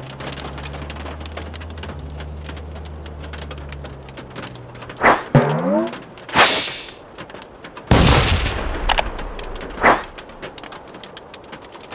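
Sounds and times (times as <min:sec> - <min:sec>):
steady light crackle: 0:00.0 - 0:11.9
whoosh: 0:05.0 - 0:07.0, 0:08.9 - 0:10.4
short snap: 0:06.3 - 0:07.0.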